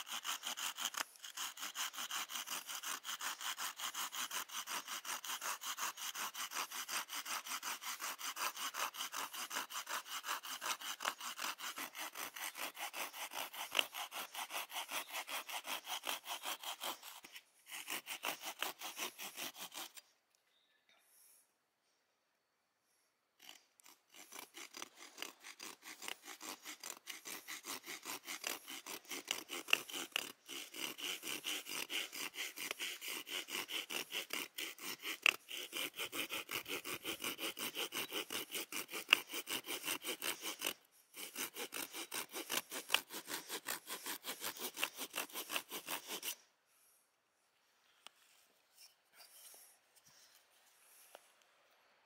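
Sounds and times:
saw cutting wood: 0.0s - 20.1s, 23.4s - 46.5s.

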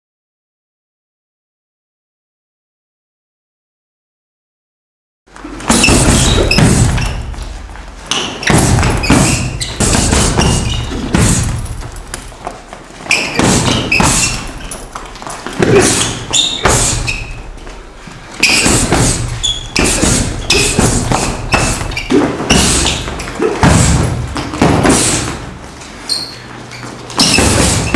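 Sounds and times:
punches thudding into punching bag: 5.5s - 12.2s, 13.2s - 14.8s, 15.4s - 17.4s, 18.4s - 25.6s, 27.2s - 27.9s.

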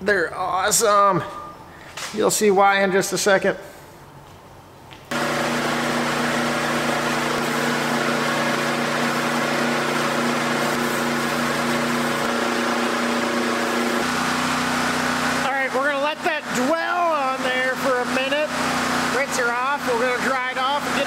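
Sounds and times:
pressure washer humming: 5.1s - 21.0s
foam cannon spraying hiss: 5.2s - 15.5s.

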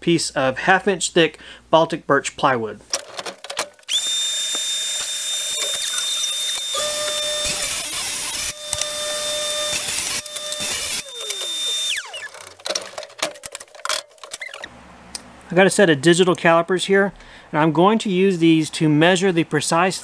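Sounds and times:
table saw motor whine: 3.9s - 12.5s
saw blade winding down: 3.9s - 12.6s.

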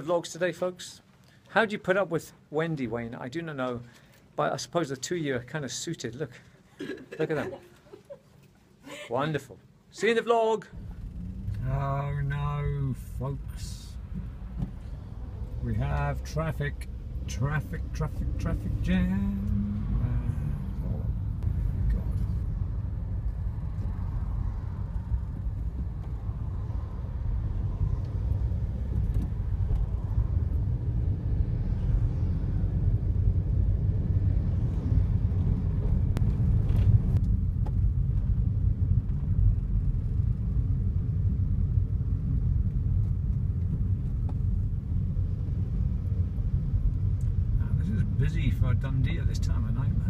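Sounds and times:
car engine rumble: 10.7s - 50.0s
road noise inside car: 10.7s - 50.0s.

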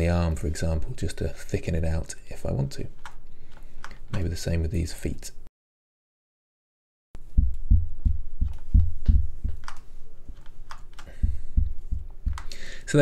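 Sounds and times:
computer keyboard keys pressed: 9.5s - 9.8s.

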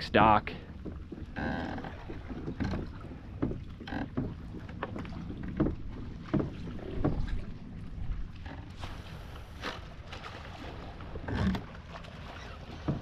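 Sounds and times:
water splashing against kayak hull: 0.0s - 13.0s
wind on microphone: 5.1s - 11.8s.

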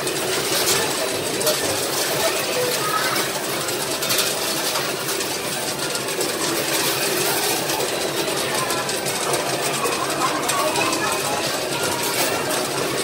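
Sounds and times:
coin pusher machine whirring: 0.0s - 13.0s
noisy arcade din: 0.0s - 13.0s.

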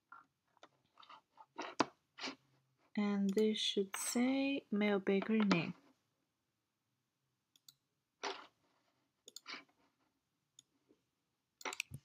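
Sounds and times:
computer mouse and keyboard clicks: 3.2s - 3.5s, 9.2s - 9.8s, 11.6s - 12.0s.

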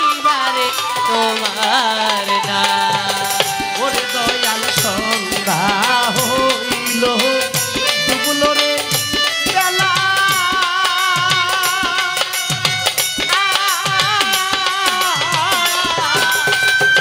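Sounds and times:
hand drums beating: 0.0s - 17.0s
man singing: 0.0s - 17.0s.

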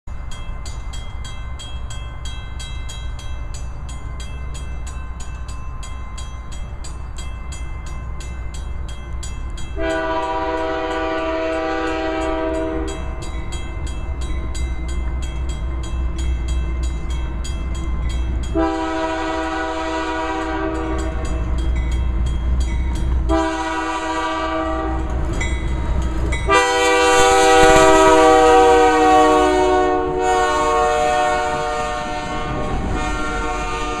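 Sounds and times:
diesel locomotive rumble: 0.1s - 34.0s
train horn blasts: 9.8s - 13.1s, 18.5s - 21.5s, 23.3s - 25.2s, 26.4s - 34.0s.

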